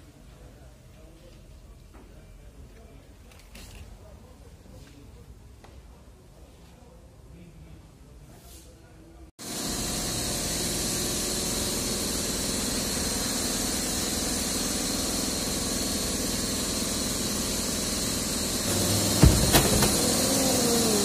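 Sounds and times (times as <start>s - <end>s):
sharp knocks: 19.1s - 20.1s.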